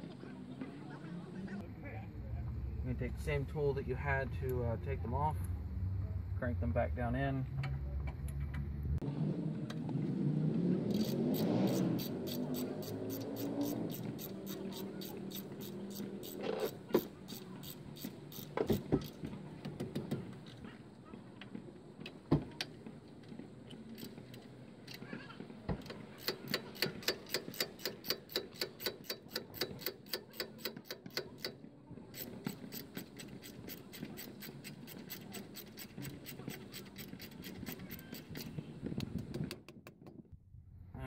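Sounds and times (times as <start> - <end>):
hand ratchet clicking: 10.9 - 19.2, 25.8 - 39.6.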